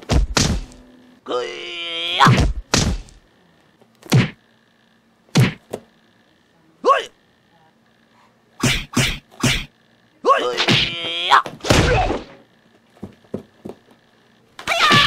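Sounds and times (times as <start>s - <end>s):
whacking hits: 0.0s - 0.8s, 2.2s - 3.2s, 4.0s - 4.4s, 5.3s - 5.8s, 8.6s - 9.7s, 10.4s - 12.4s.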